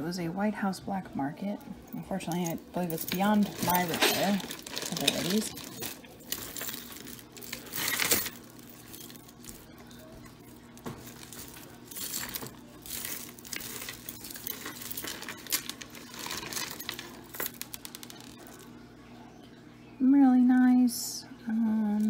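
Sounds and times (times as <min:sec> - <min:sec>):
jewelry clinking and rustling: 0:01.9 - 0:18.8.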